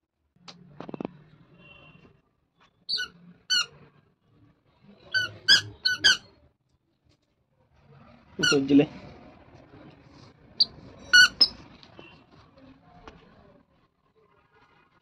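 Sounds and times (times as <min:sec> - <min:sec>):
squeaker shoes squeaking: 0:02.9 - 0:03.7, 0:05.1 - 0:06.3, 0:10.6 - 0:12.1.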